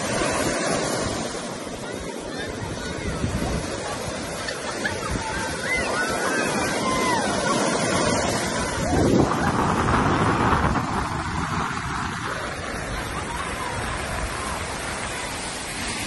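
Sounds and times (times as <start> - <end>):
surf breaking on a beach: 0.0 - 16.0
wind buffeting the microphone: 0.0 - 16.0
people calling out: 1.9 - 9.5.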